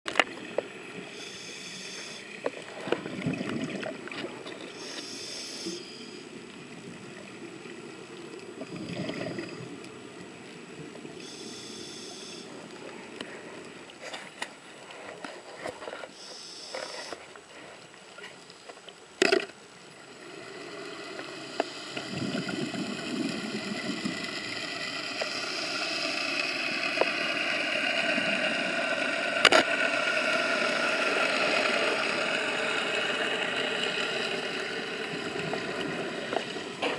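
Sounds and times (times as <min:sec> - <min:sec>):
engine hum underwater: 0:00.1 - 0:15.6, 0:19.2 - 0:36.9
regulator hissing inhale: 0:01.0 - 0:02.4, 0:04.6 - 0:06.4, 0:11.2 - 0:13.6, 0:15.9 - 0:17.8, 0:20.3 - 0:23.0, 0:24.2 - 0:28.0.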